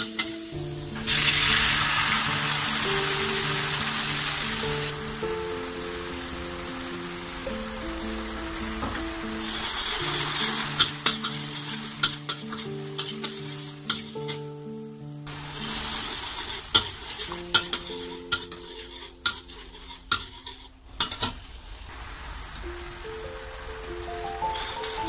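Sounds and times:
sauce sizzling: 0.0s - 25.0s
metal spatula scraping wok: 1.0s - 5.0s, 8.8s - 14.4s, 15.3s - 21.5s, 24.5s - 25.0s.

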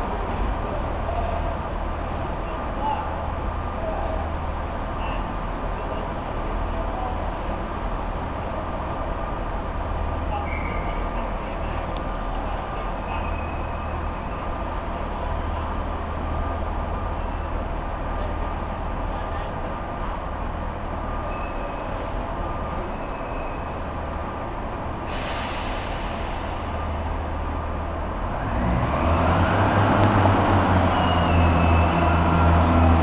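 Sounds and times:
train diesel engines: 0.0s - 33.0s
short hiss: 25.1s - 27.4s.

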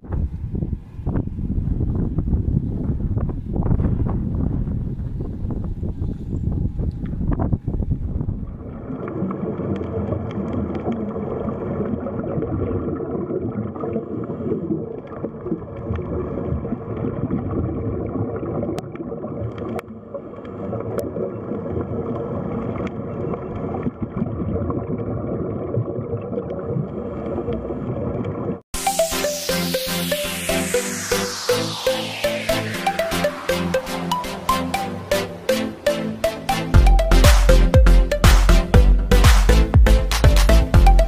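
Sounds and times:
rumbling water with gurgling: 0.0s - 28.6s.

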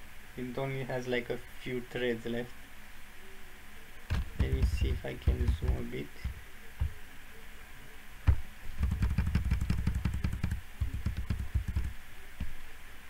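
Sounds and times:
camera handling knocks: 4.1s - 4.7s.

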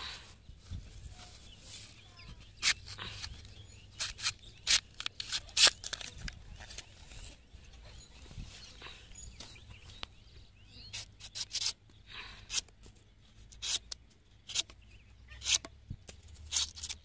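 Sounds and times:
sickle blade slicing fruit husk: 2.5s - 6.7s, 10.9s - 11.8s, 15.4s - 15.7s, 16.5s - 17.0s.

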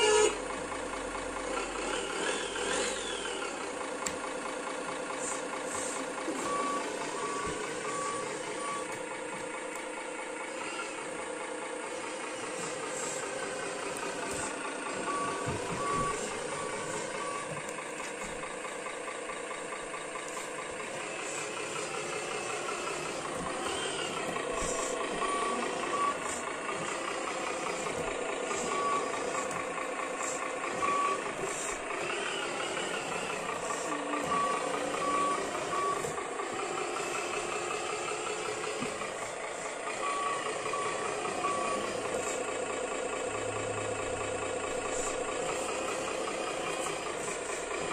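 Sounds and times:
toy truck engine sound: 0.0s - 47.9s
reversing beeps: 5.2s - 9.0s, 12.4s - 18.5s, 20.2s - 36.2s, 37.0s - 47.9s.

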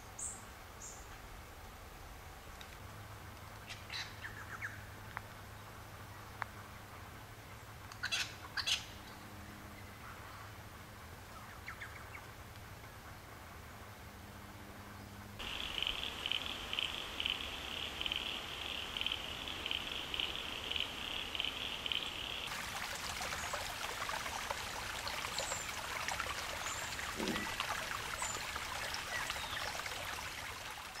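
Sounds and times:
creek trickling over rocks: 15.4s - 31.0s.

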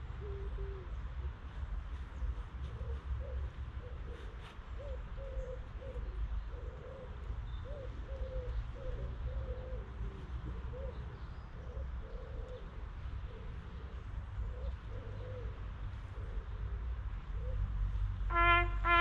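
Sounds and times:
pigeon cooing: 0.1s - 1.0s, 2.7s - 16.6s.

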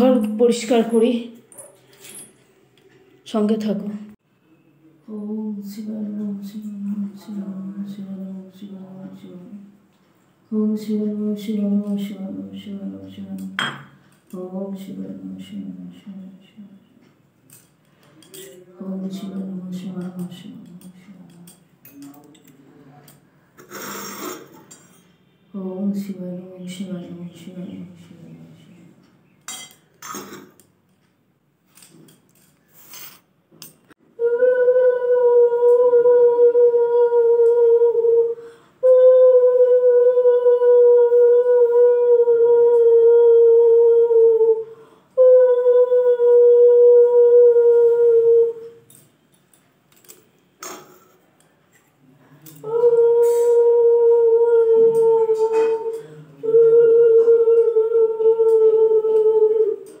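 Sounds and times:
breath: 38.4s - 38.8s, 44.7s - 45.2s.

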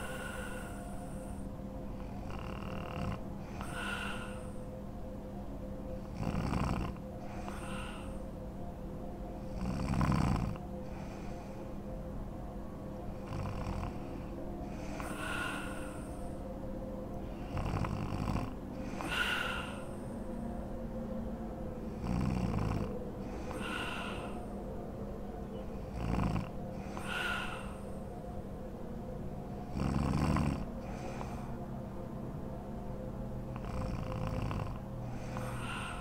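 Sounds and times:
woman snoring: 0.0s - 1.4s, 2.0s - 4.7s, 6.0s - 8.3s, 9.4s - 11.6s, 13.1s - 16.4s, 17.3s - 20.2s, 21.9s - 24.5s, 25.8s - 28.0s, 29.7s - 31.5s, 33.5s - 36.0s
breathy high breath sound: 0.0s - 4.8s, 6.9s - 8.4s, 10.5s - 11.8s, 13.1s - 16.5s, 18.7s - 20.5s, 23.2s - 24.6s, 26.7s - 28.4s, 30.8s - 31.6s, 35.0s - 36.0s.

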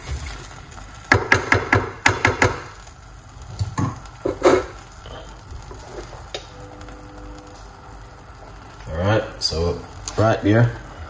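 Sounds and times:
wooden spoon knocking metal pot: 1.1s - 2.7s.

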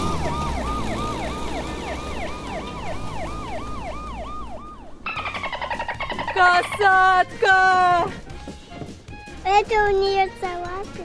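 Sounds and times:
ambulance siren yelping: 0.0s - 7.2s.

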